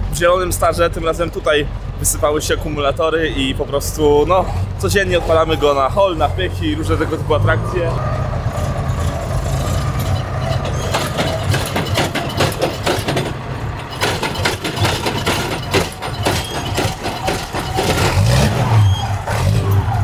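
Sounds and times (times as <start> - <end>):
diesel engine starting: 0.0 - 20.0
dense rapid clatter: 9.0 - 18.6.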